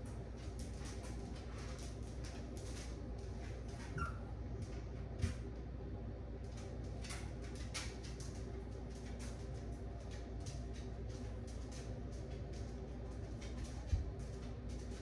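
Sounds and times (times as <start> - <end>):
puppies scrabbling and rustling: 0.0 - 5.5
steady low hum: 0.0 - 15.0.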